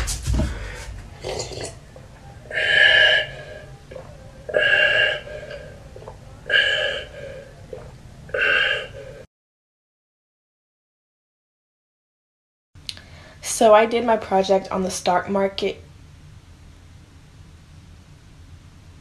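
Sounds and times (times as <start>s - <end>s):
boy gulping a drink: 1.2s - 9.2s.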